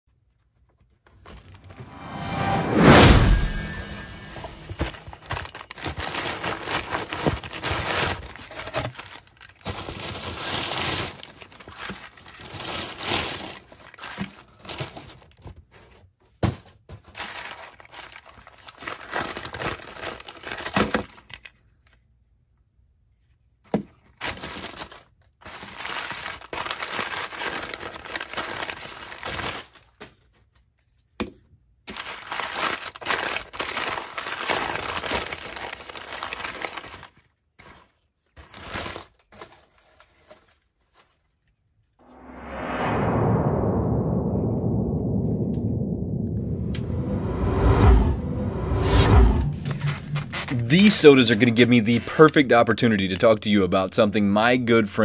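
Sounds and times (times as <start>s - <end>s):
packing paper crinkling: 32.0s - 41.2s.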